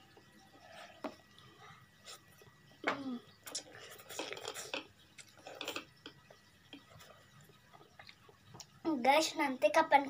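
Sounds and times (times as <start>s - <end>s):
noodles being slurped: 3.4s - 5.9s.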